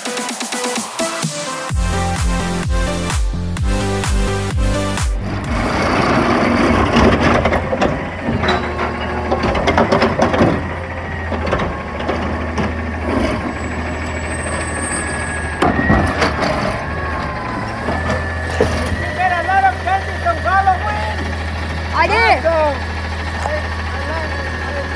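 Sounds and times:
truck engine running: 1.7 - 24.9
lifter knocks and clanks: 5.2 - 13.5.

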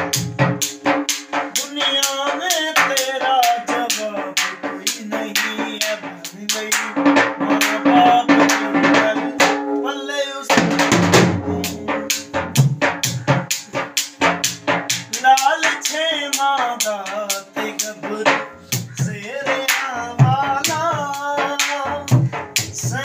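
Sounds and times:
held melodic line: 0.0 - 1.6, 9.2 - 10.5
barrel drum beaten with sticks: 0.0 - 23.0.

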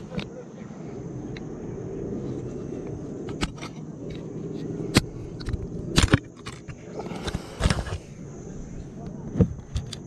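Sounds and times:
low rumble: 0.0 - 9.6.

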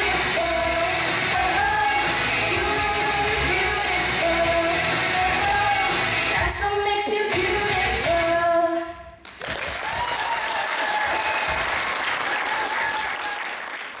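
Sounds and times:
backing track music: 0.0 - 8.8
girls singing a duet: 0.0 - 9.1
audience applauding: 9.2 - 14.0
audience cheering: 9.4 - 14.0.

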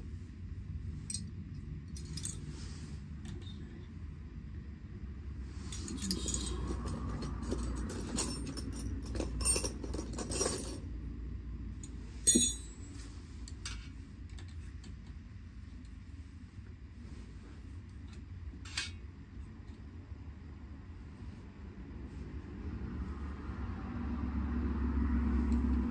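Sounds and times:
metal hand tools clinking: 5.7 - 10.8, 12.2 - 12.9
sharp metallic clink: 12.2 - 13.0.

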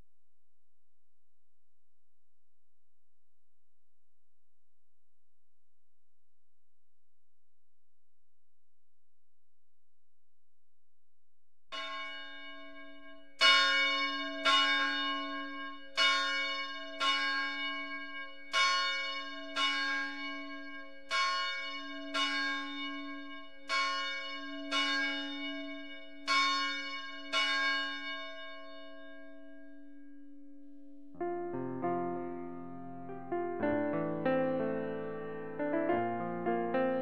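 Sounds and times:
church bell tolling: 11.7 - 32.0.

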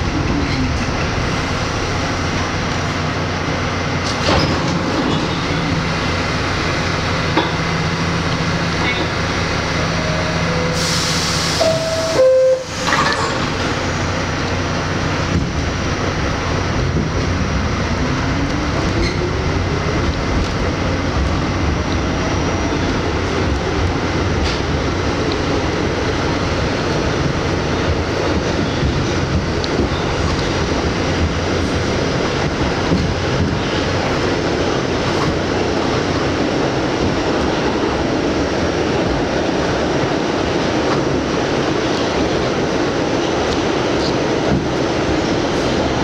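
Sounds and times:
subway car equipment humming: 0.0 - 46.0
wheel noise on rails: 0.0 - 46.0
hiss of air: 10.7 - 11.7
two-tone door chime: 11.6 - 13.2.

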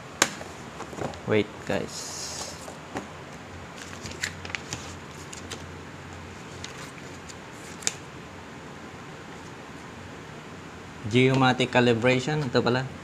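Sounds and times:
paper rustling: 3.8 - 5.7, 6.4 - 8.0.

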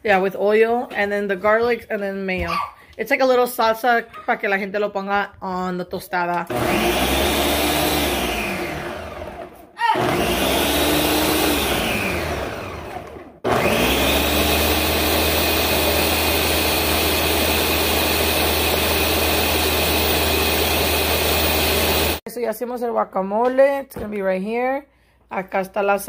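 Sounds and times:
blender motor running: 6.5 - 22.2.

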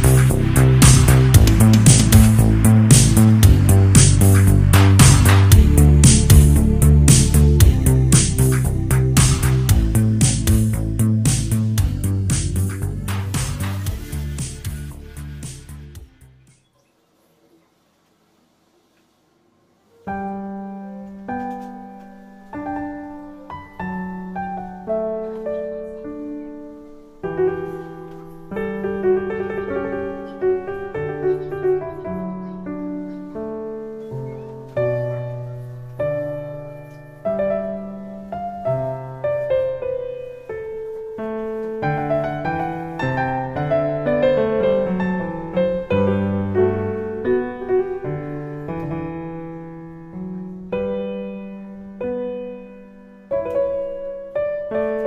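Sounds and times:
slow solo piano: 19.9 - 55.0.

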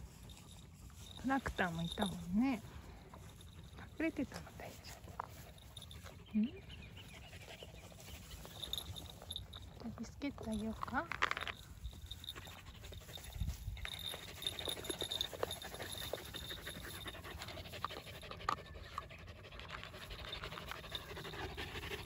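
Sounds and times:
grass rustling: 0.0 - 6.4, 7.4 - 18.4
dogs panting: 0.0 - 22.0.

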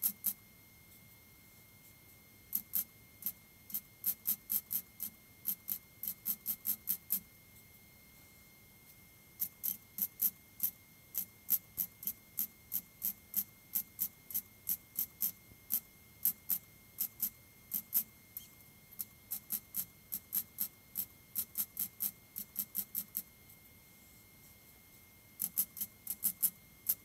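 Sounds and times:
welder spot welding blips: 9.4 - 23.3.

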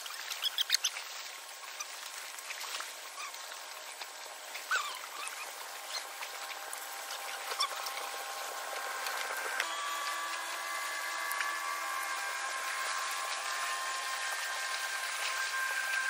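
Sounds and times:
steady multi-tone hum: 1.0 - 16.0
short squeaks: 4.6 - 6.2.

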